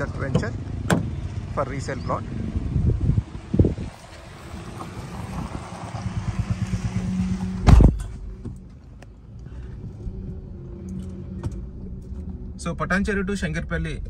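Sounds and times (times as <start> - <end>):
motorcycle passing: 0.0 - 8.7
car running: 0.0 - 14.0
loud thump: 0.3 - 1.2, 7.6 - 8.6.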